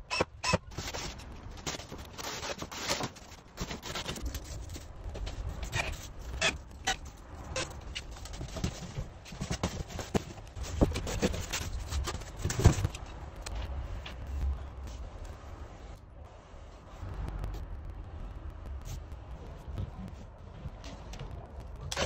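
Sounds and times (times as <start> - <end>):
low background rumble: 3.2 - 22.0
foam board scraping and knocking: 7.9 - 13.0.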